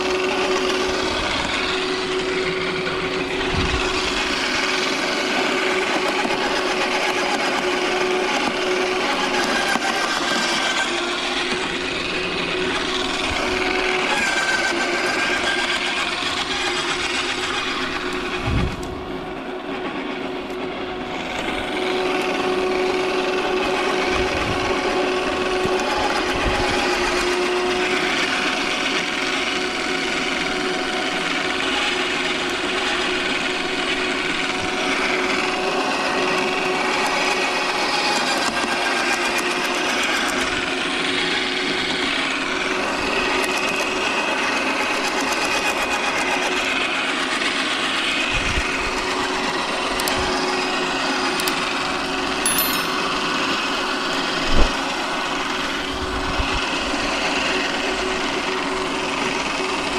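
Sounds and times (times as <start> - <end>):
garden shredder motor hum: 0.0 - 19.1.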